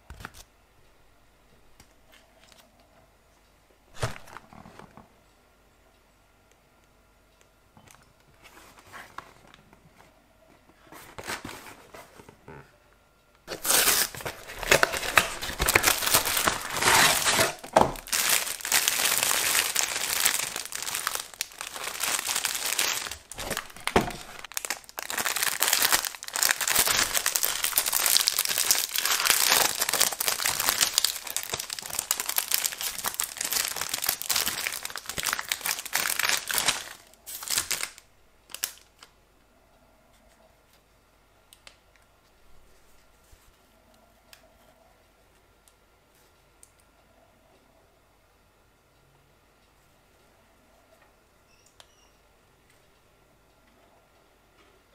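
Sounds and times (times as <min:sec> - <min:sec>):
foil wrapper crinkling: 0:13.5 - 0:39.1.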